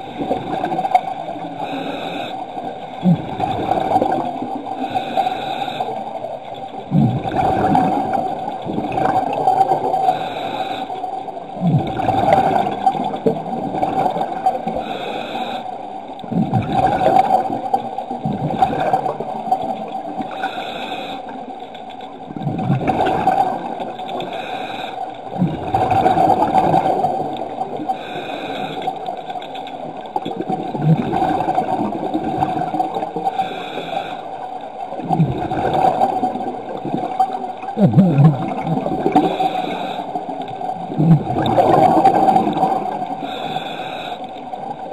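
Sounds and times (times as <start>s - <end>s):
rush of bubbles: 0.0s - 1.8s, 2.6s - 5.1s, 6.5s - 10.2s, 11.5s - 14.8s, 16.2s - 20.5s, 22.3s - 24.3s, 25.2s - 33.4s, 34.9s - 44.9s
regulator inhale hiss: 1.5s - 2.6s, 4.8s - 6.1s, 10.0s - 11.0s, 14.7s - 15.8s, 20.3s - 21.4s, 24.2s - 25.1s, 27.9s - 29.0s, 33.3s - 34.4s, 39.2s - 40.3s, 43.2s - 44.4s.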